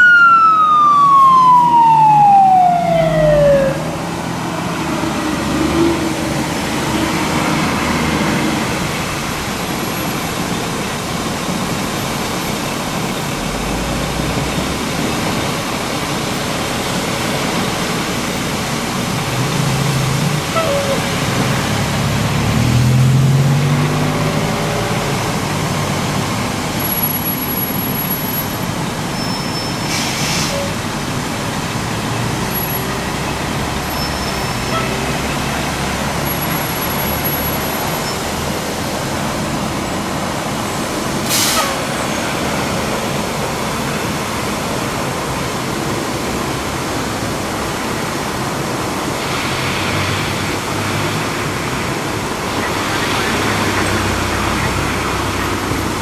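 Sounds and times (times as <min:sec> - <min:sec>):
water rushing from hydrant: 0:00.0 - 0:56.0
heavy truck driving past: 0:19.4 - 0:26.8, 0:31.7 - 0:56.0
short hisses: 0:29.9 - 0:30.6, 0:41.3 - 0:41.8.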